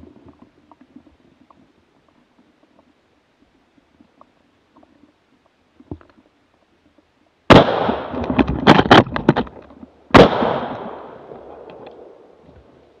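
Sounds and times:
gunshots echoing: 7.5s - 9.0s, 10.1s - 12.2s
sharp cracks: 7.5s - 12.2s.

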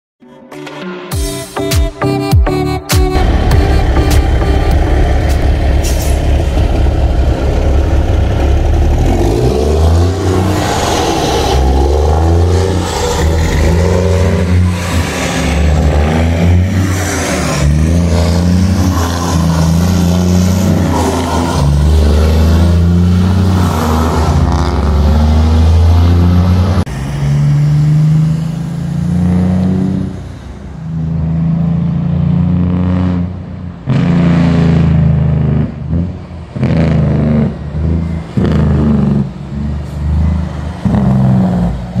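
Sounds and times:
truck diesel engine running unevenly: 3.1s - 23.5s
truck diesel engine revving: 3.1s - 42.0s.

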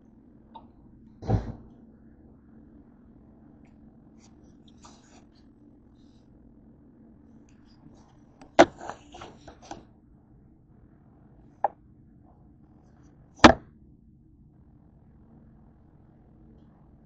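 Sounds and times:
hard knocks of objects: 8.5s - 9.7s, 13.4s - 13.6s.

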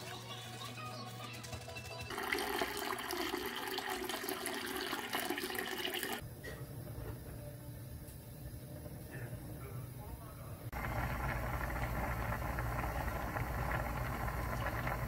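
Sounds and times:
water pouring into a cup: 2.1s - 6.2s.

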